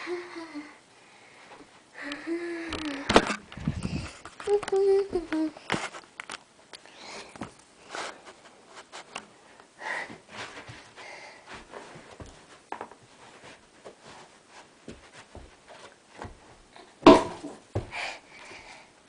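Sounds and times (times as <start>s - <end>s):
person breathing and sniffing: 9.8s - 11.6s.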